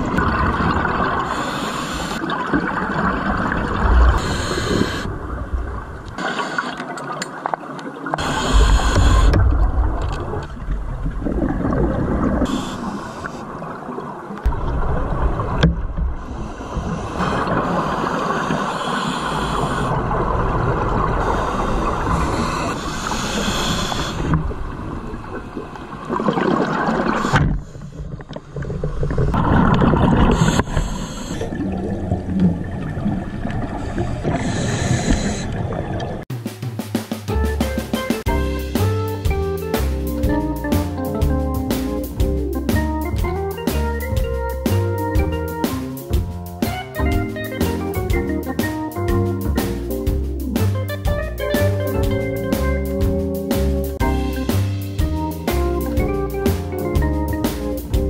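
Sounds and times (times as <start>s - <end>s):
gurgling exhaled bubbles: 0.0s - 18.7s, 19.3s - 36.2s
hissing regulator inhales: 1.2s - 2.2s, 4.2s - 5.1s, 8.2s - 9.4s, 12.5s - 13.5s, 16.2s - 20.0s, 21.2s - 24.4s, 30.3s - 31.6s, 34.3s - 35.6s.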